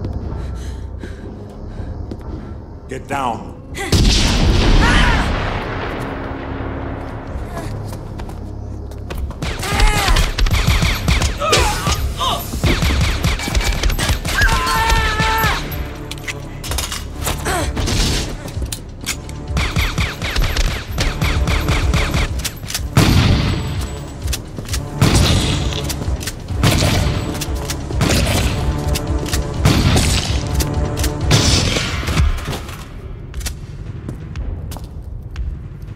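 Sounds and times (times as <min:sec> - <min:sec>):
film score music: 0:00.0 - 0:35.9
rapid gunfire: 0:09.4 - 0:11.4, 0:12.6 - 0:14.4, 0:19.5 - 0:22.4.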